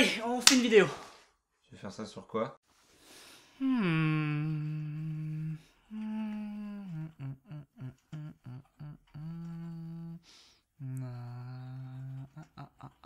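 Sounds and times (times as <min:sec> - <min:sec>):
man humming: 0:03.6 - 0:13.0.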